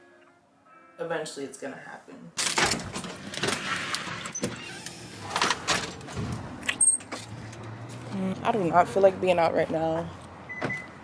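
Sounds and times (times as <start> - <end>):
door rustling and clattering: 2.4 - 7.4
door squeaks: 2.6 - 6.0, 10.5 - 11.0.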